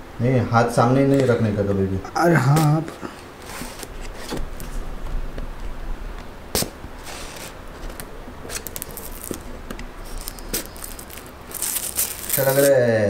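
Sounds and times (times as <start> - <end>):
plastic film rustling: 6.5 - 12.9.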